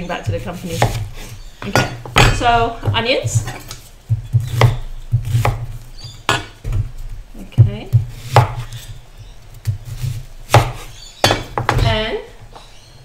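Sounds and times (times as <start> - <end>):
knife cutting onion: 0.2 - 6.5, 7.9 - 9.0, 9.6 - 11.8.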